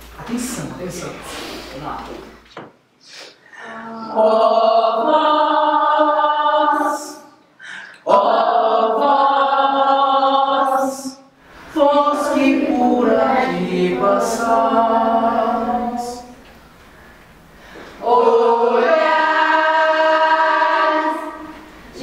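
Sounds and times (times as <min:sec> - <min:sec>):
children's choir singing: 0:03.7 - 0:07.4, 0:08.0 - 0:16.4, 0:18.0 - 0:22.0.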